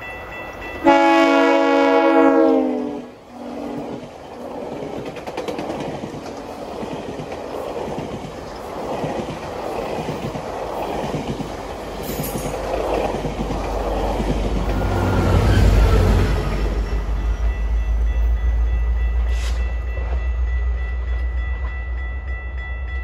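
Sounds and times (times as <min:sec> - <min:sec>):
train wheels clicking over rail joints: 0:03.4 - 0:16.0
high wheel squeal: 0:14.7 - 0:17.2.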